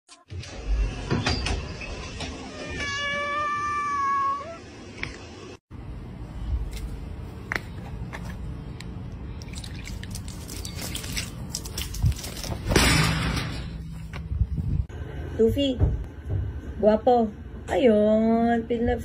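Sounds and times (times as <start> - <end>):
cat meowing: 2.5 - 4.6.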